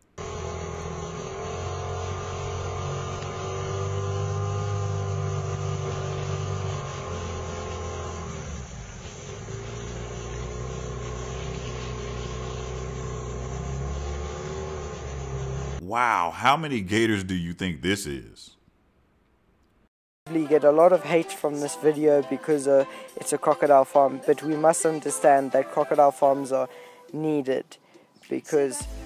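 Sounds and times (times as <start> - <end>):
boat motor running: 0.2 - 15.8.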